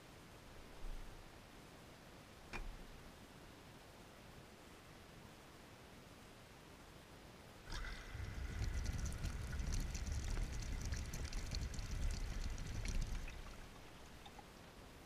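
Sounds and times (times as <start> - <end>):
water rushing into drum: 7.7 - 14.4.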